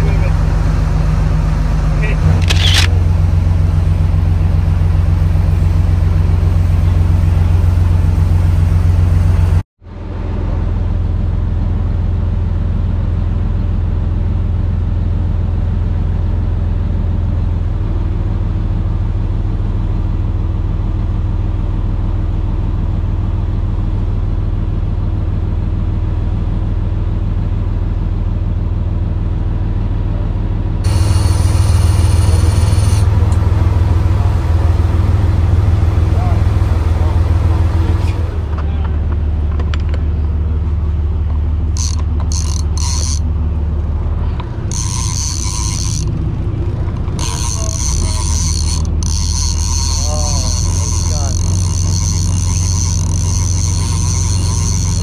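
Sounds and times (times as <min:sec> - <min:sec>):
motor vehicle droning: 0:00.0 - 0:55.0.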